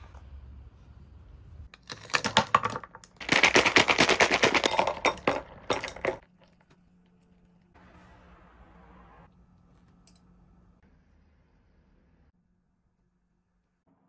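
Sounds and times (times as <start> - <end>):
milk pouring: 1.8 - 6.2
ice cubes clinking and crackling: 1.8 - 6.6.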